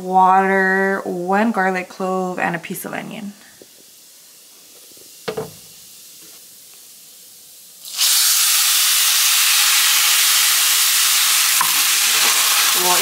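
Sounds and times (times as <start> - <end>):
liquid sizzling in hot skillet: 3.5 - 13.0.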